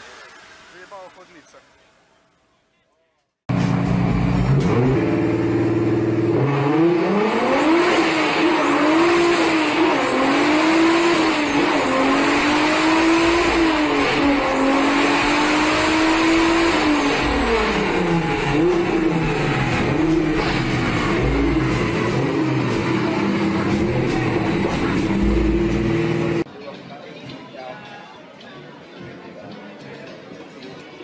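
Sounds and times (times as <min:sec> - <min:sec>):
engine revving hard: 0:03.6 - 0:26.5.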